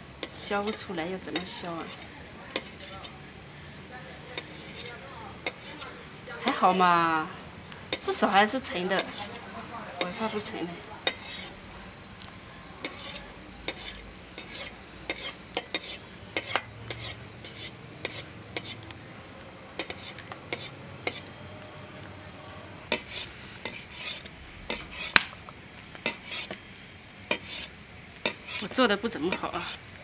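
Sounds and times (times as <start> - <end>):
water boiling: 0.0 - 30.0
cleaver scraping dough: 0.2 - 3.2, 4.3 - 7.0, 7.9 - 11.6, 12.8 - 18.9, 19.8 - 21.3, 22.9 - 25.3, 26.0 - 26.6, 27.3 - 29.8.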